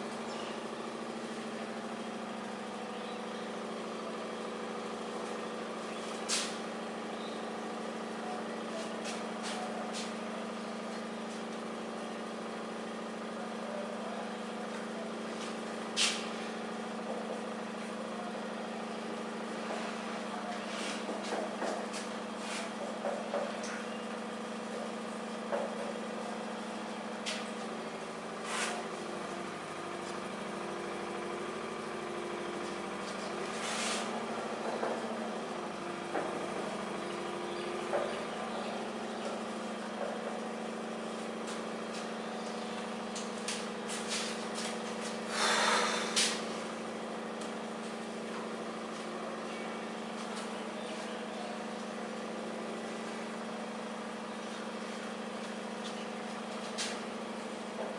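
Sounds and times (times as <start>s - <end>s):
whiteboard being wiped: 28.4s - 28.8s, 33.6s - 34.1s.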